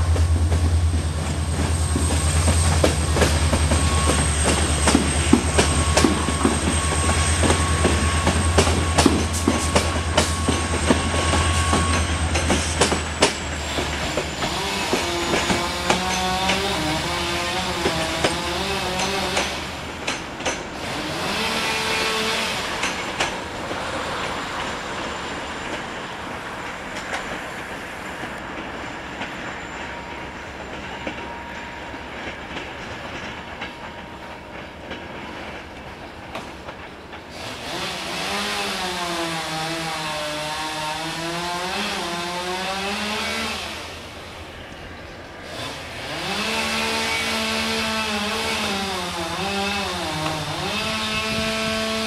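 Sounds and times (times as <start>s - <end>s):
train wheel clicks: 0.0s - 20.8s, 21.4s - 37.4s
diesel locomotive engine droning: 0.0s - 52.0s
train coaches rolling on rails: 0.0s - 52.0s.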